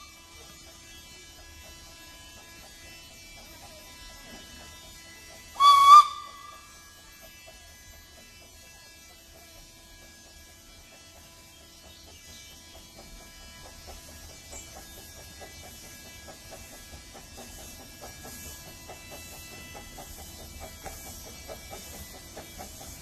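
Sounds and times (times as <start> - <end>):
steam locomotive whistle: 5.5 - 7.0.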